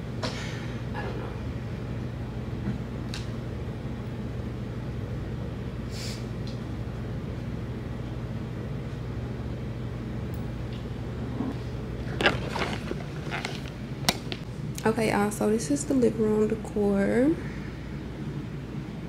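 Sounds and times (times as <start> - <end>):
dishwasher humming: 6.8 - 17.6.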